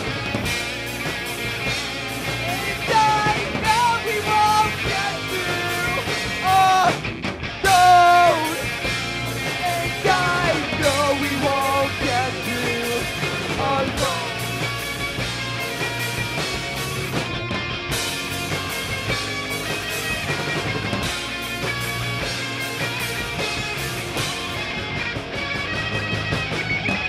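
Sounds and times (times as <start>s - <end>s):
drum kit: 0.0s - 27.0s
electric guitars: 0.0s - 27.0s
man singing: 2.4s - 7.0s, 7.6s - 8.7s, 9.5s - 14.5s.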